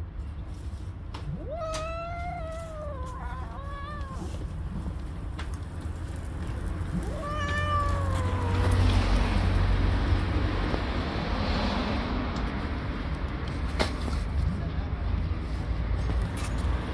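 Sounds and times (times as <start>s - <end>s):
street traffic rumble: 0.0s - 16.9s
cat meowing: 1.2s - 4.6s, 6.9s - 9.5s.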